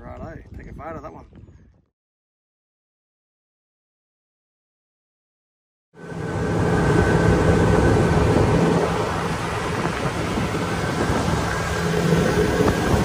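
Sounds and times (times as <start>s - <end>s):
wind buffeting microphone: 0.0s - 1.9s, 6.0s - 13.0s
outboard motor running: 6.0s - 13.0s.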